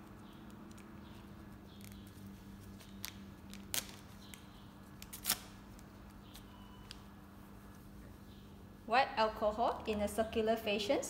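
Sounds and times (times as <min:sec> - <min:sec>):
syringe clicks and crackles: 0:00.0 - 0:05.4
faint steady hum: 0:00.0 - 0:11.0.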